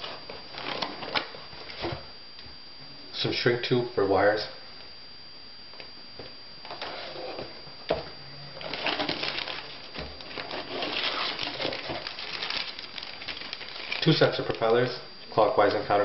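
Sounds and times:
hands rummaging in cardboard box: 8.6 - 14.1
plastic bags crinkling: 8.6 - 14.7.

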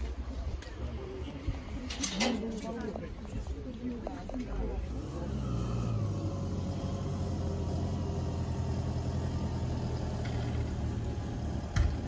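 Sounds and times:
vehicle engine running: 4.4 - 12.0.

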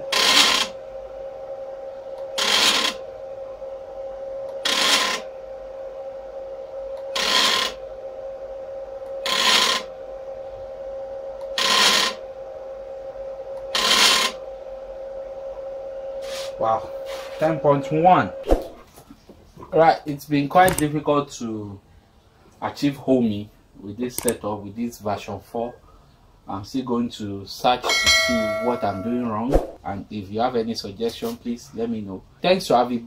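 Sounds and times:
stepper motor buzzing rattle: 0.0 - 0.8, 2.2 - 3.1, 4.5 - 5.3, 7.0 - 7.8, 9.2 - 9.9, 11.4 - 12.2, 13.6 - 14.4
steady whine: 0.0 - 26.0, 26.6 - 33.0.

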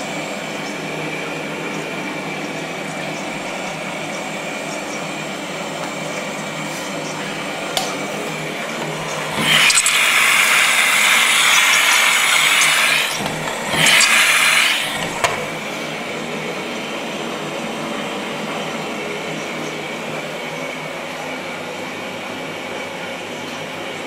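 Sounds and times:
washing machine hum: 0.0 - 24.0
water hissing into washing machine: 8.4 - 15.8
washing machine click: 11.2 - 15.6.

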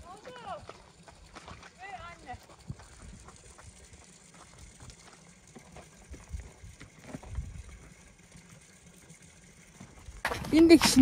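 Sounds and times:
hooves on muddy ground: 0.0 - 11.0
wind buffeting microphone: 2.0 - 4.8, 6.0 - 8.0.

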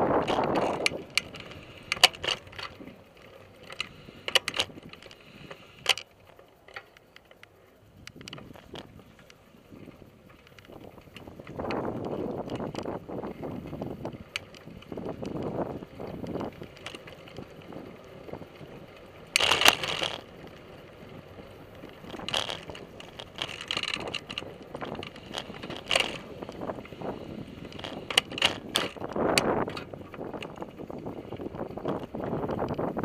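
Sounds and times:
wind noise: 0.0 - 6.0, 7.8 - 33.0
bicycle frame rattling and clicking: 0.0 - 33.0.

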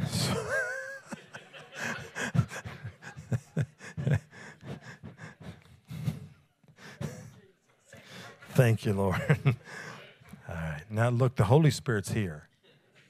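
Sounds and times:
man breathing and murmuring: 0.0 - 0.8, 1.7 - 8.5, 9.5 - 10.5.

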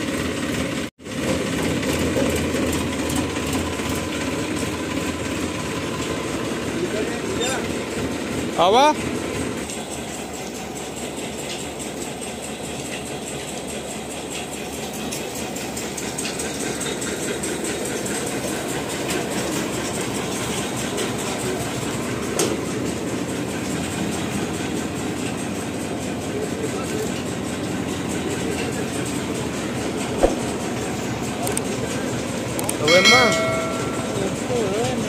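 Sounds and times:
combine harvester clattering: 0.0 - 35.0
sharp click: 30.2 - 30.5.

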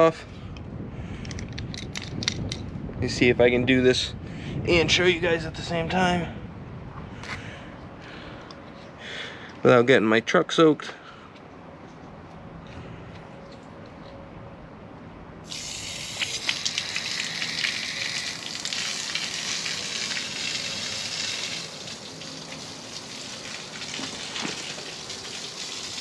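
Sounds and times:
water spraying from hose: 15.5 - 26.0.

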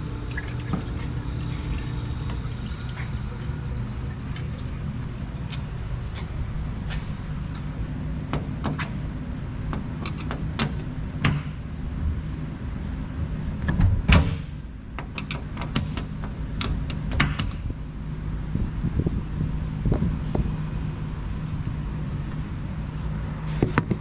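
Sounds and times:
machine motor humming: 0.0 - 6.9.

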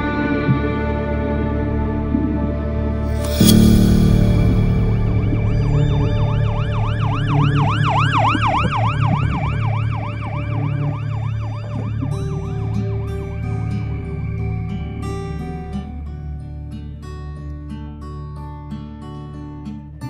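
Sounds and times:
background music: 0.0 - 16.4
acoustic guitar plucking: 3.0 - 19.8
ambulance siren wailing: 5.9 - 15.0.

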